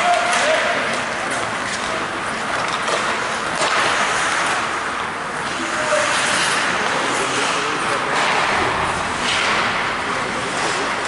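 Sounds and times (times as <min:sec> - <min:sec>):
hockey stick and puck clicks: 0:00.0 - 0:08.5, 0:09.2 - 0:09.8
skates scraping ice: 0:00.0 - 0:11.0.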